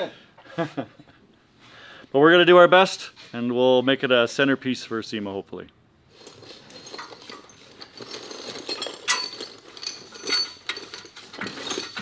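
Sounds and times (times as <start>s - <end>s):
metal tubing clinking and knocking: 6.1s - 12.0s.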